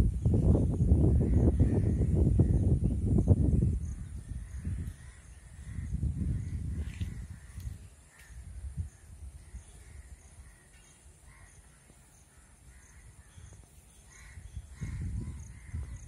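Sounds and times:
low rumble on microphone: 0.0s - 10.6s, 14.2s - 16.0s.

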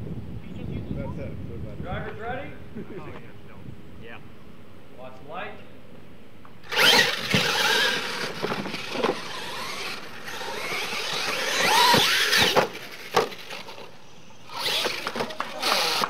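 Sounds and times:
rc truck motors whining: 6.6s - 16.0s
sharp crack of truck tumbling: 6.7s - 13.9s, 14.5s - 16.0s.

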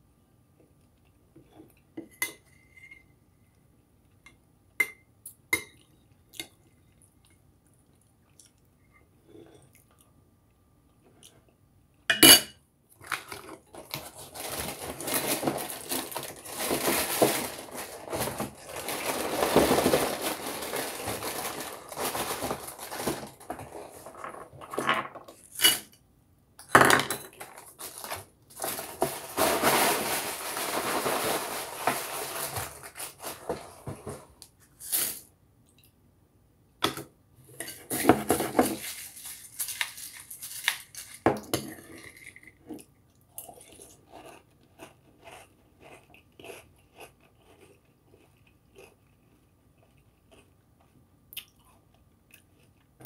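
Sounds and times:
crackling cereal rustle: 13.0s - 25.6s, 27.3s - 35.3s, 37.8s - 42.5s.

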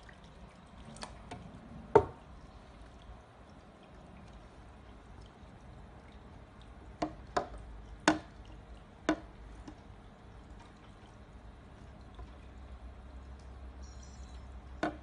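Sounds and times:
faint water sounds: 0.0s - 15.0s.

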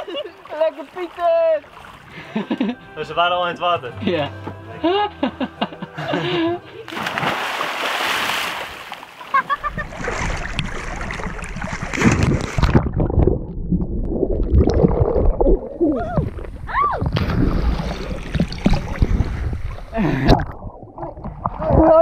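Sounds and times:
muffled underwater bubbling: 9.6s - 22.0s.

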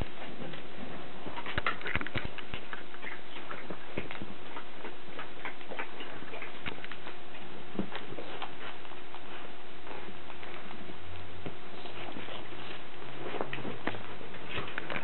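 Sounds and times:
dog claws clicking on hard floor: 1.4s - 9.0s.

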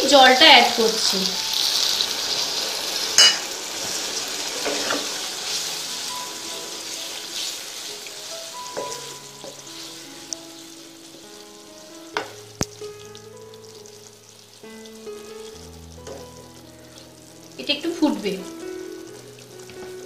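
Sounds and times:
liquid sizzling: 0.0s - 20.0s
soft background music: 0.0s - 20.0s
spatula knocking on pan: 3.2s - 3.5s, 8.7s - 9.7s, 12.1s - 12.4s
spatula stirring curry: 3.8s - 12.4s, 15.2s - 17.1s.

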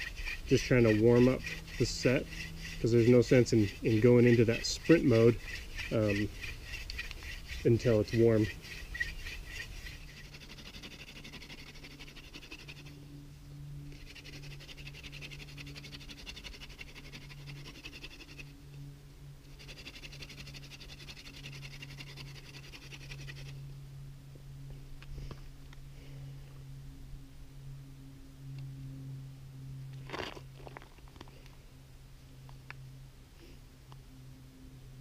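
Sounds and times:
wood grinding on wood: 0.0s - 12.9s, 14.0s - 18.5s, 19.6s - 23.5s, 30.0s - 31.4s
steady low hum: 0.0s - 35.0s.

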